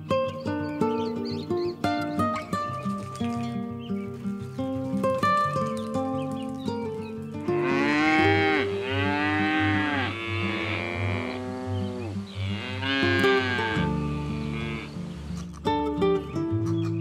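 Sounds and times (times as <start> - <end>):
cow mooing: 7.5 - 15.0.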